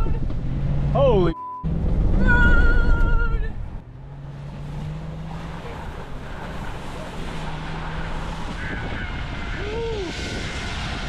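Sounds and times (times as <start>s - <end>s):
tyres hissing on wet road: 5.3s - 11.0s.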